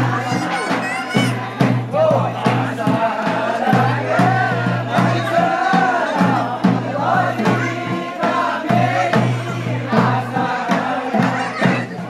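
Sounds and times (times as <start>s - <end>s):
steady struck beat: 0.0s - 12.0s
voices singing folk song in chorus: 0.0s - 12.0s.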